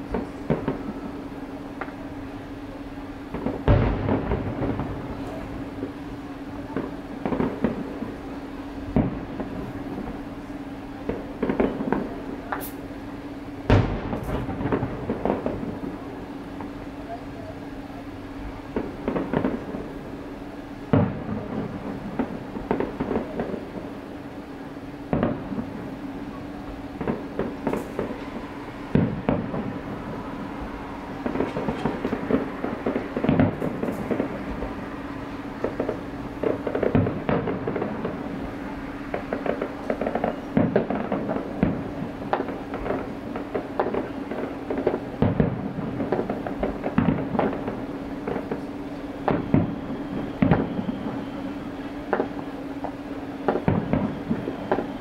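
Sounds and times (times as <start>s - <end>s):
fireworks booming: 0.0s - 55.0s
fireworks crackling and popping: 0.0s - 55.0s.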